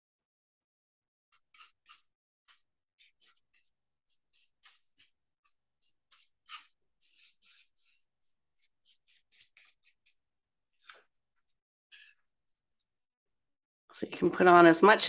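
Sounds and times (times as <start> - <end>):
paintbrush strokes on wood: 1.4 - 11.0.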